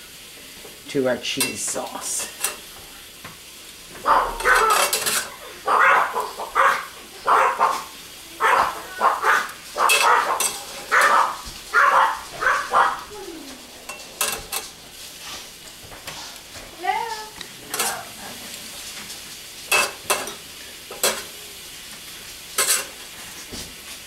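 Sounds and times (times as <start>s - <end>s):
animal calling: 4.0s - 13.9s.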